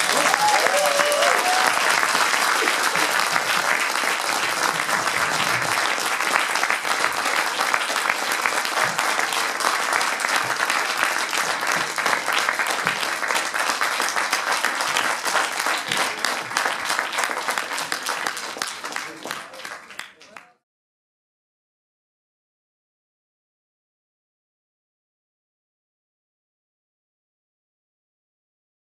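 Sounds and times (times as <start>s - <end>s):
audience applauding: 0.0s - 20.6s.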